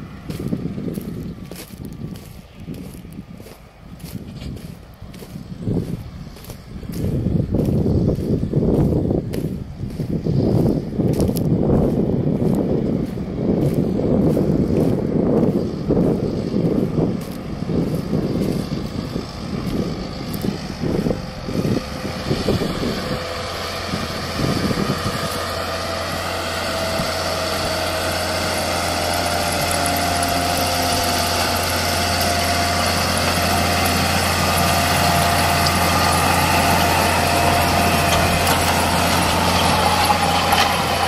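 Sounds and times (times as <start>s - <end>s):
tractor diesel engine running: 0.0s - 41.0s
wind buffeting microphone: 0.0s - 41.0s
whining tone rising in pitch: 17.2s - 41.0s.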